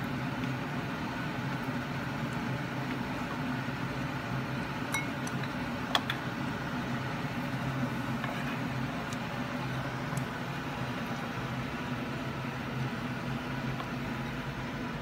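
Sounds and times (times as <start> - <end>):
kitchen appliance humming: 0.0 - 15.0
utensils clicking on ceramic bowl: 4.9 - 6.2.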